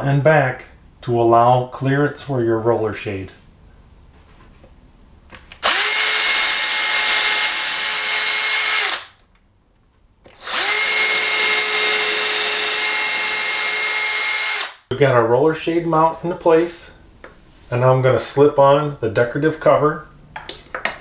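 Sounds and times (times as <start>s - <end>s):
cordless drill boring into wood: 5.6s - 9.1s, 10.3s - 14.9s.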